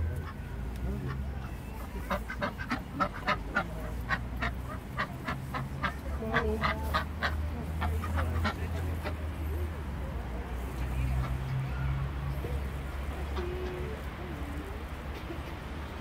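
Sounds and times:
ducks quacking: 0:00.2 - 0:09.6.

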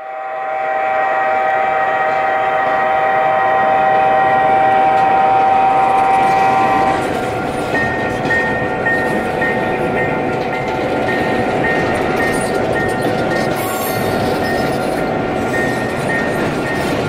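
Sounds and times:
model train air horn: 0:00.0 - 0:07.1
model train rolling on track: 0:00.0 - 0:17.0.

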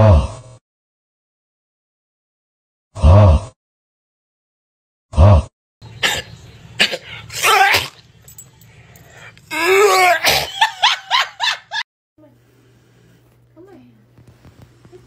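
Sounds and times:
harsh cough-like vocal burst: 0:06.8 - 0:08.0, 0:10.2 - 0:10.7.

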